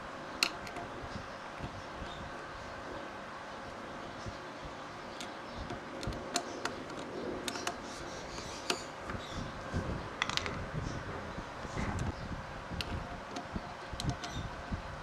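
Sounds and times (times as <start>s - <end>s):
steady background hiss: 0.0s - 15.0s
small metallic clicks and taps: 5.2s - 9.2s, 12.8s - 14.4s.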